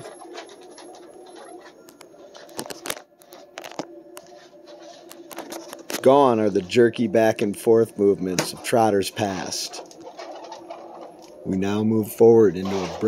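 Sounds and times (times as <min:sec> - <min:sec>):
electric hub motor humming: 0:00.0 - 0:13.0.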